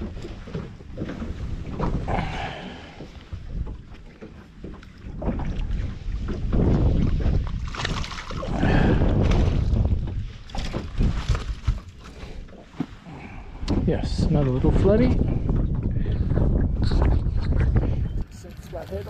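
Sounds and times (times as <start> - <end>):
wind buffeting microphone: 0.0 - 12.5, 13.1 - 19.0
water splashing: 0.0 - 12.8.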